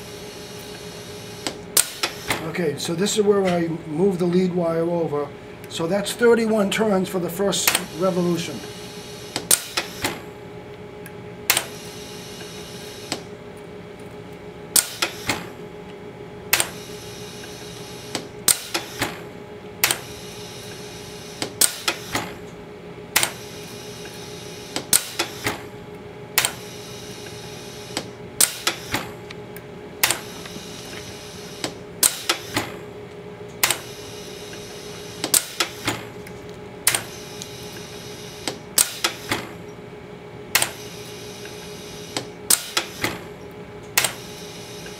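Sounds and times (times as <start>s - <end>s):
steady machine hum: 0.0s - 44.9s
sharp mechanical clicks: 1.4s - 2.5s, 11.5s - 11.8s, 14.7s - 15.5s, 16.5s - 16.8s, 18.1s - 19.2s, 19.8s - 20.1s, 21.4s - 22.4s, 23.1s - 23.5s, 24.8s - 25.6s, 26.4s - 26.6s, 27.9s - 29.1s, 30.0s - 32.8s, 33.6s - 33.9s, 35.2s - 36.1s, 36.8s - 39.6s, 40.5s - 43.2s, 43.9s - 44.3s.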